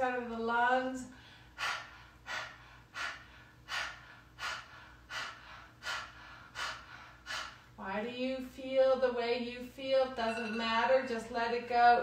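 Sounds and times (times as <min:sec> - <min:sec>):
woman breathing forcefully: 0:01.0 - 0:07.8.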